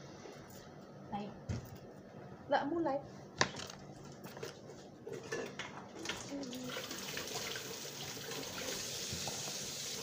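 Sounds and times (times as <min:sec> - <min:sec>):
tap water running into sink: 0:06.0 - 0:10.0.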